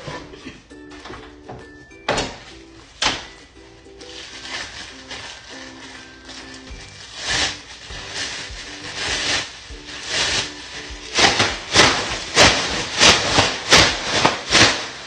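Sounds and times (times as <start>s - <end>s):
rhythmic scraping strokes: 3.8s - 15.0s.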